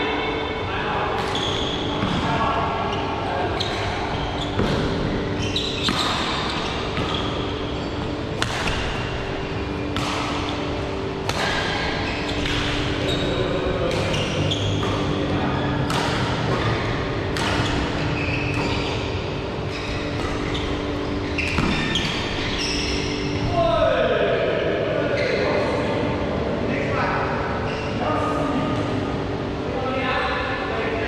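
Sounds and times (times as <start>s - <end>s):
steady low hum: 0.0s - 31.0s
court shoes squeaking: 1.2s - 23.6s, 25.2s - 25.8s, 27.5s - 28.1s
rackets hitting shuttlecock: 8.4s - 13.0s, 13.7s - 15.2s, 15.8s - 18.9s, 20.1s - 22.6s.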